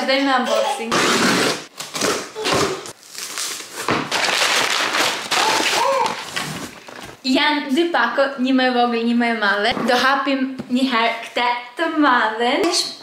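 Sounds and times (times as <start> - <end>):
cardboard box being cut: 0.9 - 2.2
packing paper crinkling: 2.9 - 7.2.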